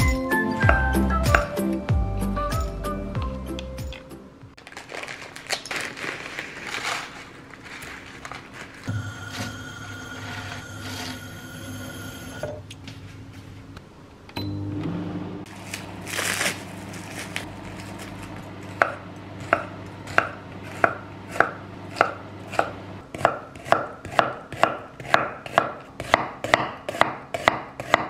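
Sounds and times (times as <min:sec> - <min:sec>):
microwave oven hum: 0:08.9 - 0:12.8, 0:14.2 - 0:23.1
knife chopping on wooden board: 0:18.8 - 0:28.0.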